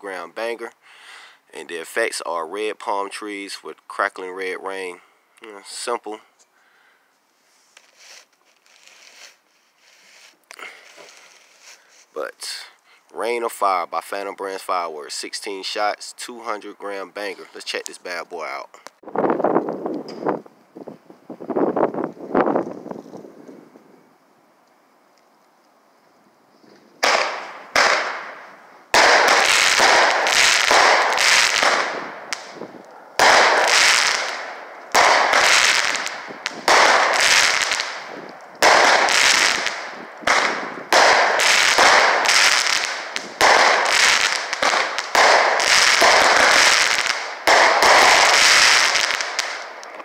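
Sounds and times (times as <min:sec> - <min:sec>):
firework crackling: 0:07.7 - 0:12.7, 0:27.0 - 0:50.0
firework bangs: 0:27.0 - 0:50.0.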